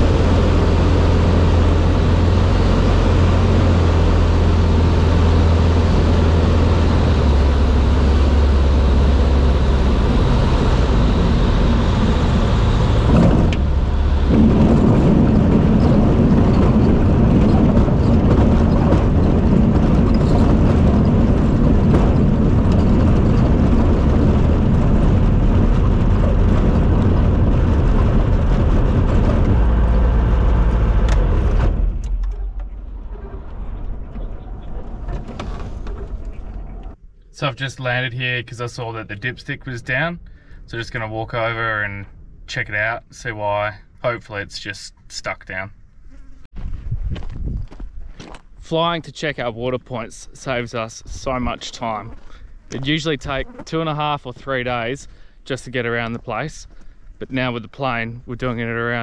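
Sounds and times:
light aircraft engine and propeller: 0:00.0 - 0:37.0
wheels rumbling over dirt: 0:00.0 - 0:40.2, 0:46.0 - 0:59.0.

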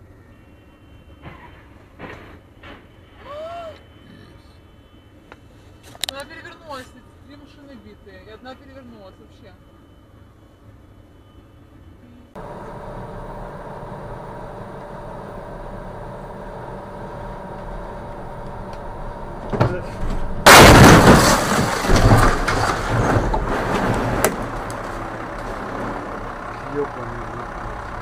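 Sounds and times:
vehicle driving noise: 0:12.3 - 0:28.0
crunching and clattering: 0:19.4 - 0:25.6
loud crash impact: 0:19.6 - 0:24.7.

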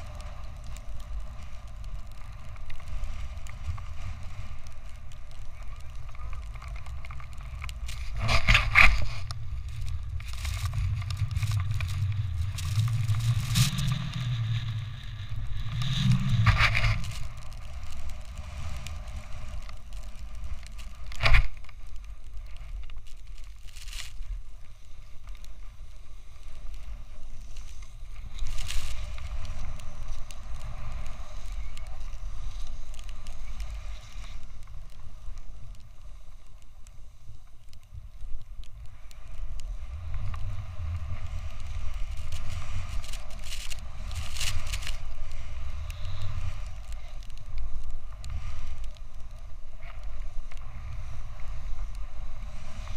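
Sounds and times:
wind rumbling on microphone: 0:00.0 - 0:52.9
snowboard scraping on snow: 0:05.6 - 0:20.6, 0:25.8 - 0:34.5, 0:39.8 - 0:48.8.

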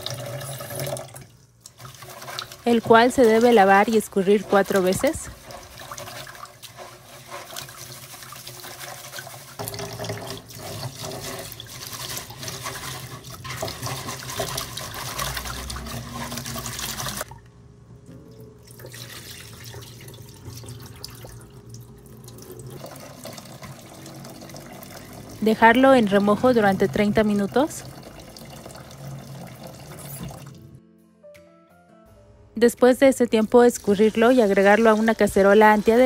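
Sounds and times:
tap water running into bowl: 0:00.0 - 0:17.4, 0:18.2 - 0:30.6
hand swishing rice in water: 0:04.4 - 0:09.6.

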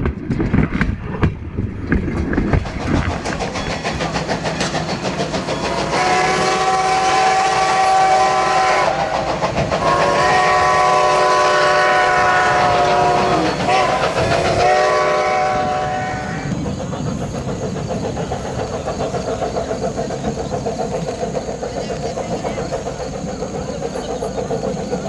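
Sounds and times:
train running: 0:00.0 - 0:25.0
steam locomotive chime whistle: 0:05.6 - 0:16.5.

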